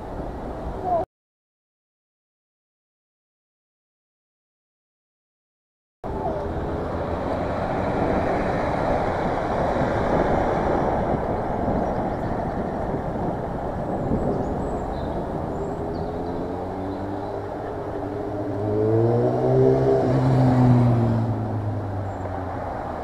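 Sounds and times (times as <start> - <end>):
slow urban traffic rumble: 0.0 - 1.0, 6.0 - 23.0.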